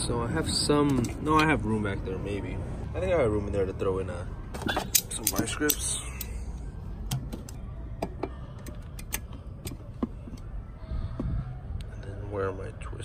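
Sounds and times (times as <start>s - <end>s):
metallic clicks of vice grips: 4.8s - 6.4s.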